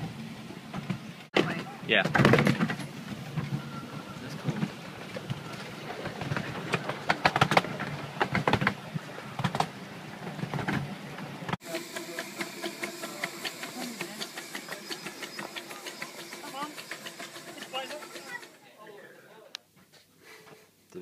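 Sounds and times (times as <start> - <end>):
train wheels clicking over rail joints: 0.0 - 18.6
steam locomotive letting off steam: 11.6 - 18.6.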